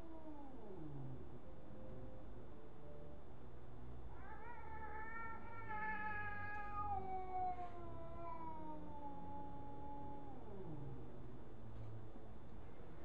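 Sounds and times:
cat yowling: 4.1s - 11.0s.

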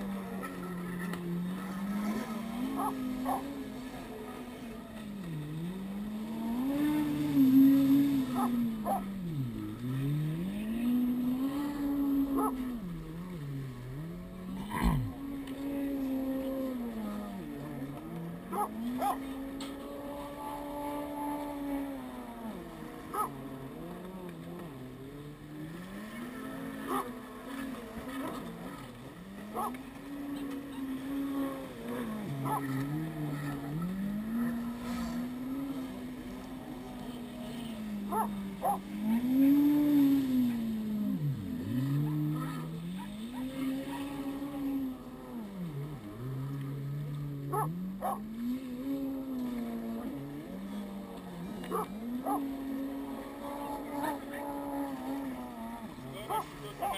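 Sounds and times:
jet ski engine: 0.0s - 56.9s.

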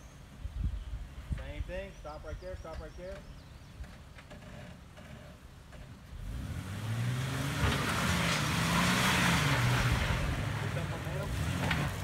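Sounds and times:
engine idling and revving: 3.8s - 12.0s.

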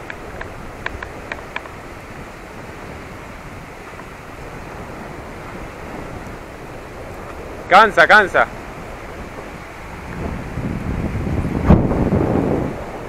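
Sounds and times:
light clicks: 0.0s - 1.8s
choppy water: 0.0s - 13.0s
wind blowing over microphone: 0.0s - 13.0s.

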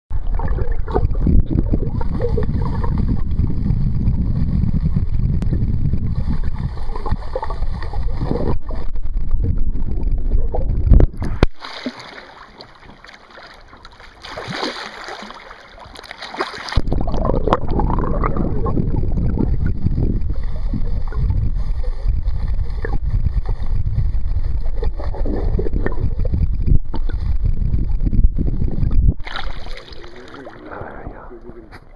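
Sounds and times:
fish splashing at surface: 11.2s - 17.6s, 29.2s - 30.7s.

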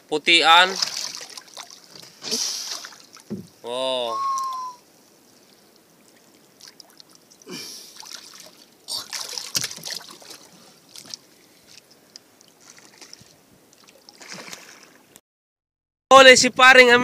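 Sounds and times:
water splashing around boat: 0.5s - 15.2s
knocks and rattles on hull: 3.3s - 3.6s.

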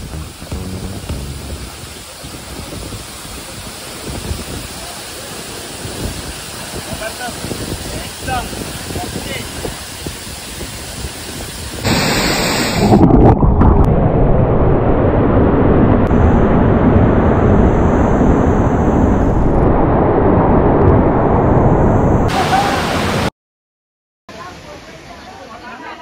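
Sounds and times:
waterfall rushing: 0.0s - 13.1s, 22.3s - 23.3s.

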